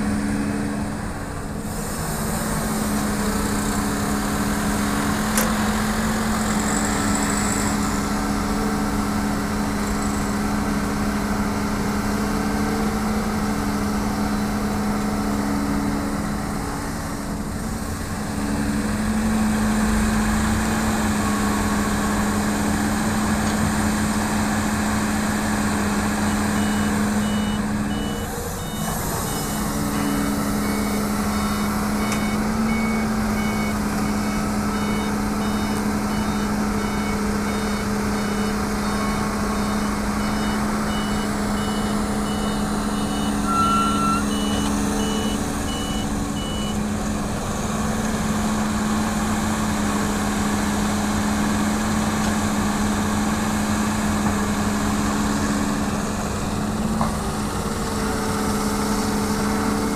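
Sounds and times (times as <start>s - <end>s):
excavator diesel engine: 0.0s - 59.9s
reversing alarm beeps: 26.6s - 46.8s.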